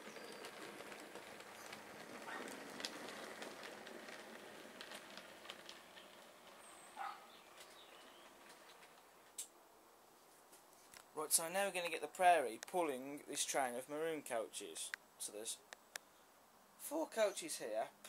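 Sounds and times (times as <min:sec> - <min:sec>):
model train motor whirr: 0:00.0 - 0:07.0
wheels clicking on rails: 0:00.0 - 0:09.5.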